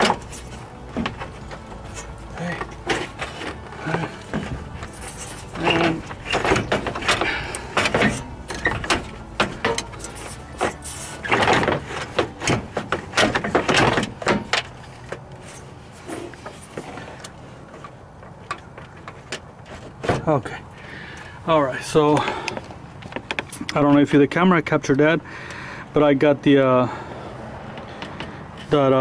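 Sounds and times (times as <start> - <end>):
radiator knocking and rattling: 0.0 - 15.3.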